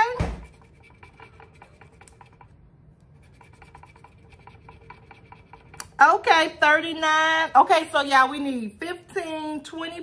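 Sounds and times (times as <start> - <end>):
coin scratching lottery ticket: 0.0 - 2.5, 3.2 - 5.8.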